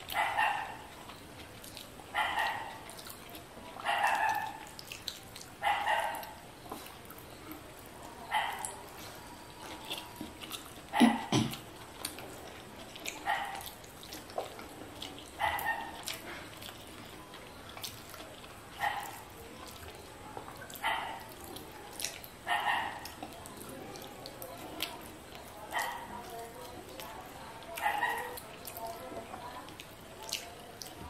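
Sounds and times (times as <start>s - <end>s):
dog barking: 0.1s - 0.9s, 2.1s - 2.8s, 3.8s - 4.7s, 5.6s - 6.4s, 8.2s - 8.8s, 10.9s - 11.3s, 13.2s - 13.7s, 15.4s - 16.1s, 18.8s - 19.3s, 20.7s - 21.4s, 22.5s - 23.1s, 25.7s - 26.1s, 27.8s - 28.4s.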